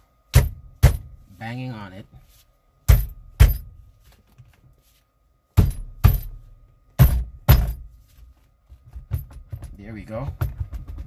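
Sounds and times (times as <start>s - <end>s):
knocks on steering wheel: 9.0s - 11.0s.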